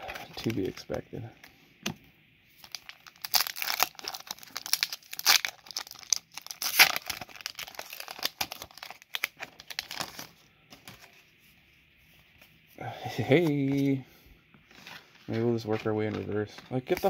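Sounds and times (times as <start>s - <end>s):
foil wrapper crinkling: 2.6s - 10.3s.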